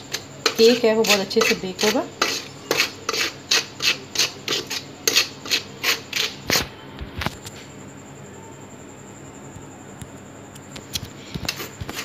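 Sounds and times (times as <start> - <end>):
metal spoon scraping steel bowl: 0.0 - 6.7, 11.4 - 12.0.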